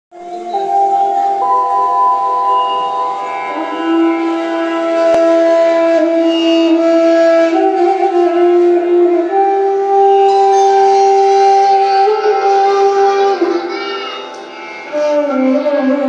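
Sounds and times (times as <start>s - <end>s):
melody of long held notes: 0.2s - 16.0s.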